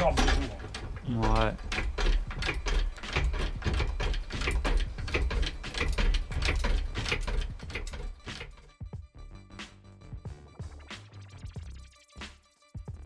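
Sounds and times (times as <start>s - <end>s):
floor jack pumping: 0.0s - 8.8s.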